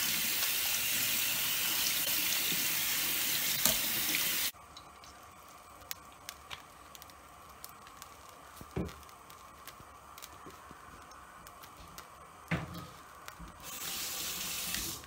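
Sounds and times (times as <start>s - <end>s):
tap water running into colander: 0.0s - 4.9s, 13.6s - 15.0s.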